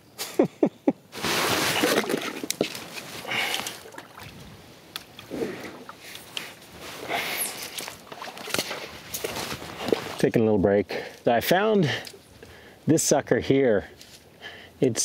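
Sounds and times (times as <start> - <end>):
water splashing and sloshing: 1.2 - 10.4.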